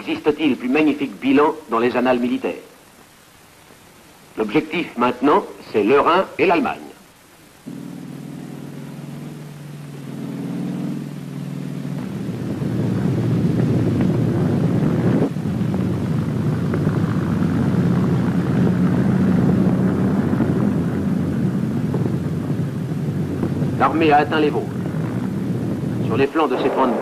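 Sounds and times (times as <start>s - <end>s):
tank engines rumbling: 7.3s - 27.0s.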